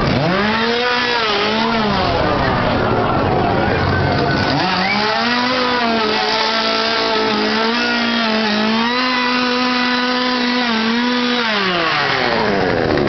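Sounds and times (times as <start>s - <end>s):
chainsaw engine revving: 0.0s - 13.0s.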